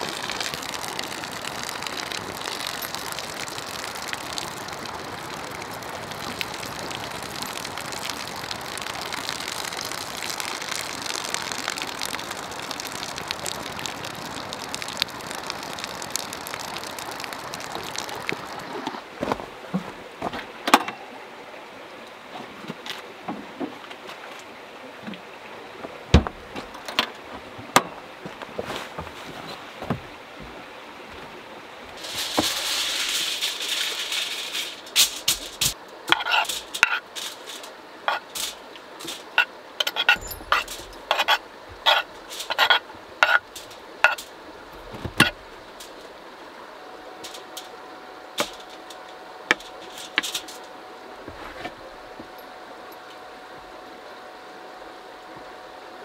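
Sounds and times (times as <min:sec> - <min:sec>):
hiss: 0:32.0 - 0:44.3.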